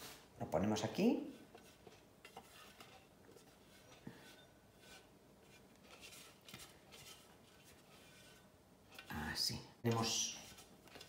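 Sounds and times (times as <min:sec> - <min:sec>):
spatula scraping metal bowl: 0:01.3 - 0:09.1.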